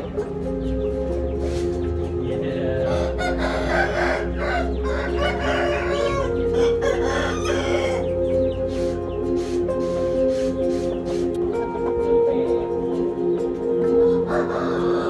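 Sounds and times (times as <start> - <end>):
background music: 0.0 - 15.0
chickens clucking: 0.0 - 15.0
rooster crowing: 2.9 - 8.2, 14.1 - 15.0.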